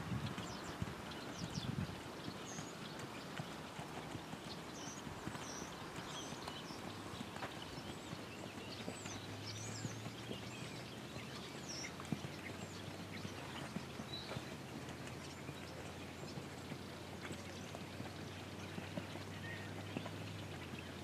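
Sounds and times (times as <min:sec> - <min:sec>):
horse hooves thudding in sand: 0:00.0 - 0:21.0
small birds chirping: 0:00.0 - 0:21.0.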